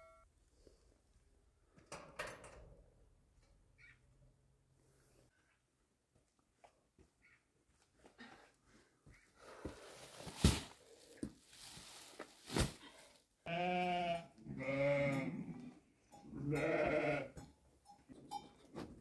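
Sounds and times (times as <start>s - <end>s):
sheep bleating: 13.4s - 15.7s, 16.4s - 17.4s.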